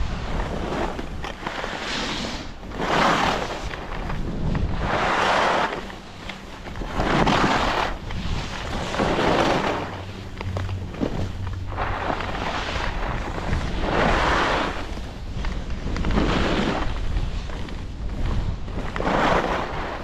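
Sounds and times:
skis scraping on snow: 0.0 - 20.0
wind buffeting microphone: 0.0 - 20.0.

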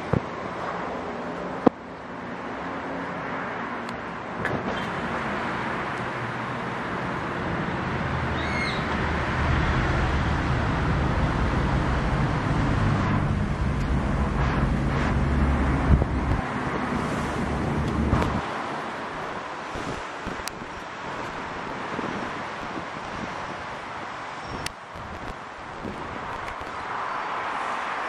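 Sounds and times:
traffic noise: 0.0 - 28.0
low engine rumble: 4.9 - 18.4.

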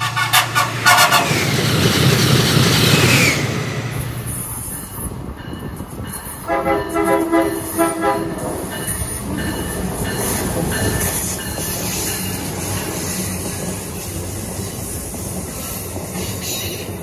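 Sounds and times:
train horn blasts: 0.0 - 1.4, 6.5 - 8.4
train rumble and wheel noise: 0.0 - 17.0.

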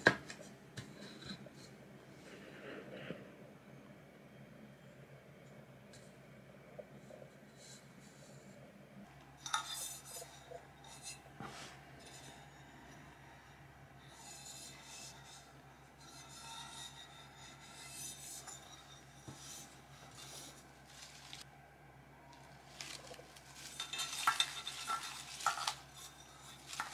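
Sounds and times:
hands rubbing and scraping items: 14.0 - 21.5, 22.3 - 26.9.

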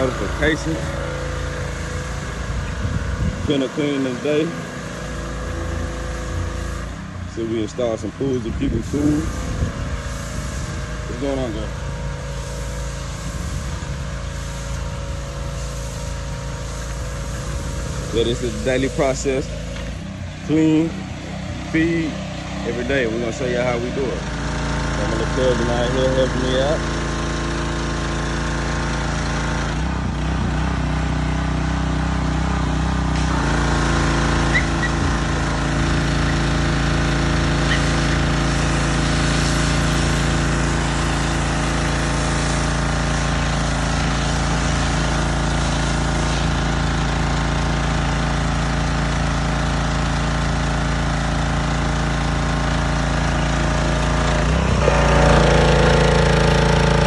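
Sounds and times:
small engine running: 0.0 - 57.0.

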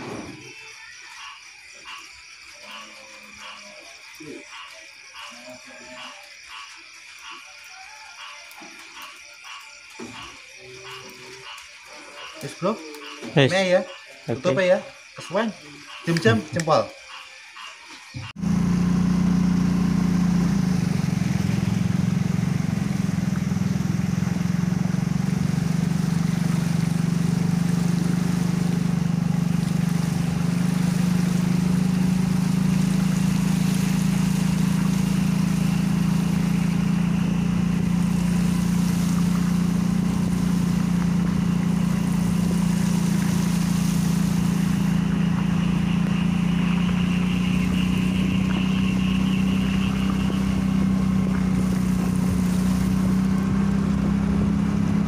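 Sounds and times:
motorcycle engine running: 18.1 - 55.0
water swishing under tyres: 19.0 - 55.0.

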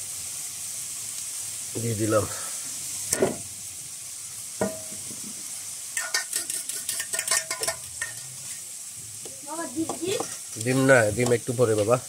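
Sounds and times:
meat sizzling in oil: 0.0 - 12.0
steel bowl clinking against pan: 6.0 - 8.4
metal spoon scraping a pan: 6.0 - 8.7, 9.9 - 11.0.

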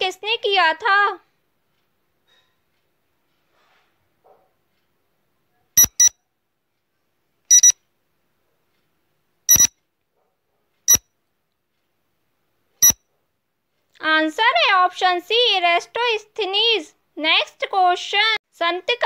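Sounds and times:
short sharp electronic beeps: 5.8 - 6.2, 7.5 - 7.8, 9.5 - 9.7.

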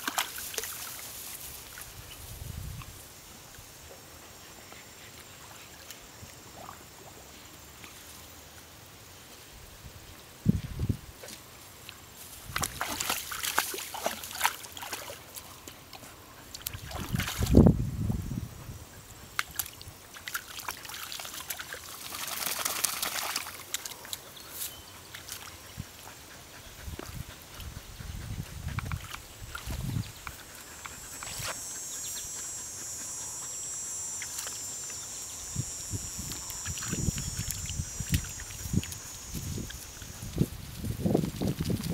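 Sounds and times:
dogs splashing in water: 0.0 - 1.1, 12.4 - 17.6, 19.4 - 24.2
water splashing and sloshing: 12.4 - 17.6
high-pitched buzz: 30.4 - 40.6.

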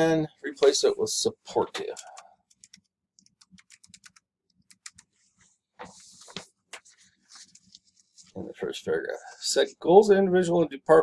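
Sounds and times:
keyboard keys clicking: 2.0 - 5.1.

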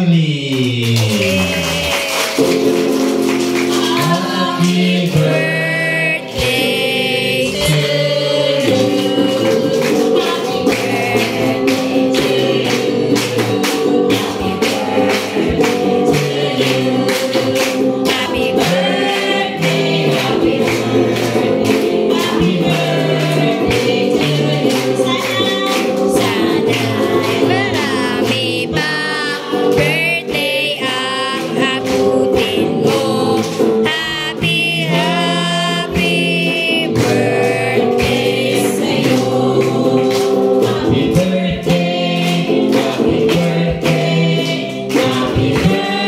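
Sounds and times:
electric guitar: 0.0 - 46.0
rhythmic hand-clapping: 0.0 - 46.0
group singing: 1.2 - 46.0
woman singing into a microphone: 3.7 - 41.8.

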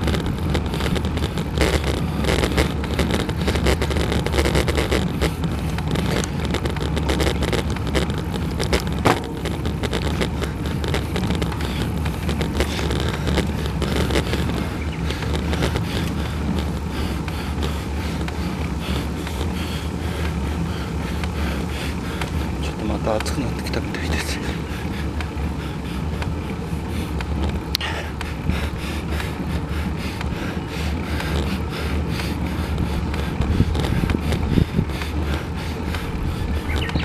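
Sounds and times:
low road rumble: 0.0 - 37.0
wind rushing over microphone: 32.7 - 37.0.

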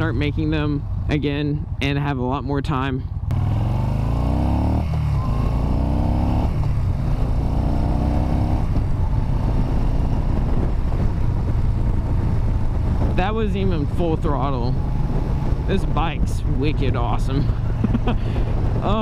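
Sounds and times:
motorcycle engine accelerating: 3.1 - 19.0.

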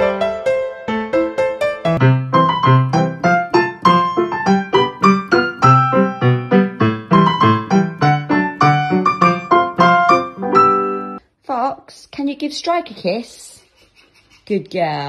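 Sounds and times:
piano tune: 0.0 - 11.2.

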